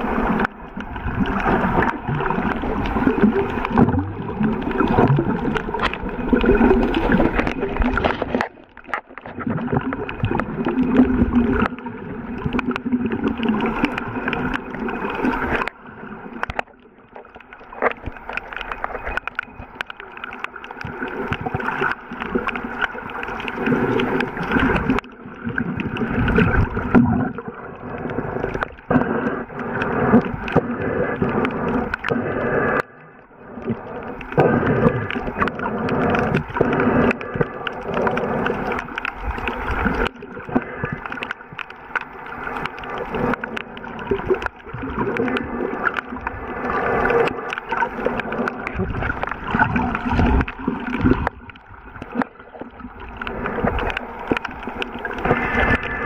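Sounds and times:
water rushing and gurgling underwater: 0.0s - 56.0s.

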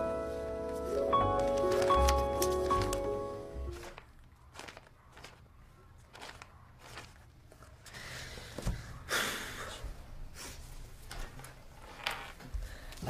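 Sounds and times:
paper rustling: 0.6s - 7.9s.

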